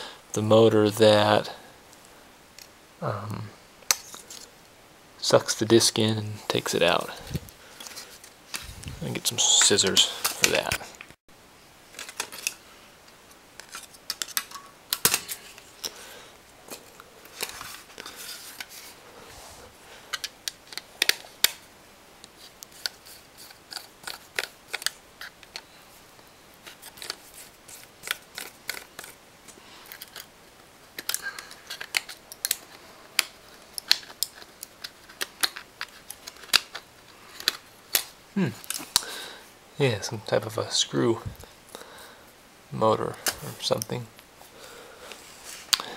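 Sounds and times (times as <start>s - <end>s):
small plastic and metal parts clicking: 31.0s - 39.0s.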